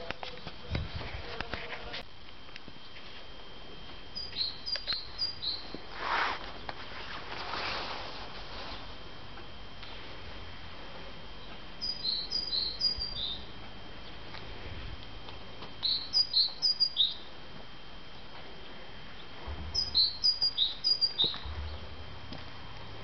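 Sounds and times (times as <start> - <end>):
faint steady high whine: 0.0 - 23.0
high bird-like chirps: 4.2 - 5.7, 11.8 - 13.5, 15.8 - 17.2, 19.8 - 21.5.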